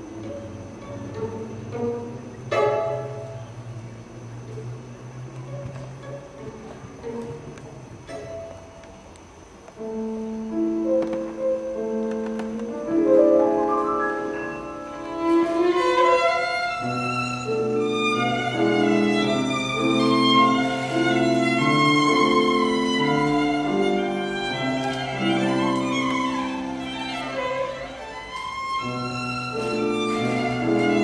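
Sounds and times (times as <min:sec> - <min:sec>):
violin playing waltz melody: 0:00.1 - 0:08.7, 0:13.2 - 0:31.0
piano accompaniment: 0:09.8 - 0:31.0.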